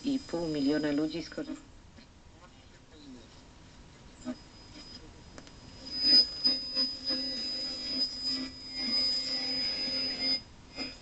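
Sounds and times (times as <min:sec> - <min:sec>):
garbled radio sound and static: 0:00.0 - 0:07.5
high-pitched radio whistle: 0:04.2 - 0:11.0.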